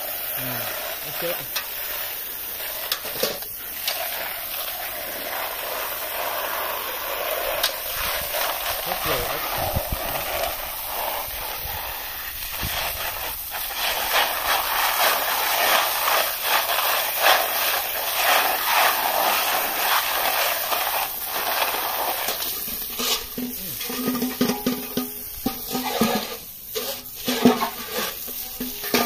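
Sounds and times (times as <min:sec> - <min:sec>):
hose water spraying and splashing: 0:00.0 - 0:29.0
snail shells stirred by hand: 0:00.0 - 0:29.0.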